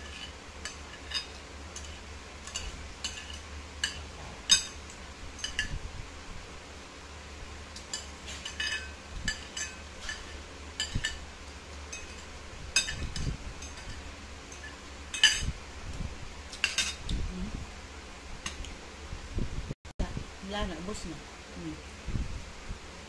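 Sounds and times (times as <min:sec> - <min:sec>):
cutlery clinking on a plate: 0:00.0 - 0:04.8, 0:07.8 - 0:11.2, 0:11.9 - 0:15.5, 0:16.5 - 0:17.0.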